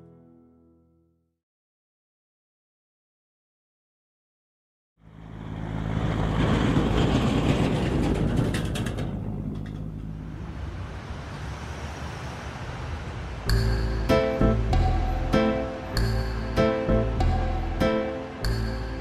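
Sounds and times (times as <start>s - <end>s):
vehicle engine and road noise: 5.0s - 19.0s.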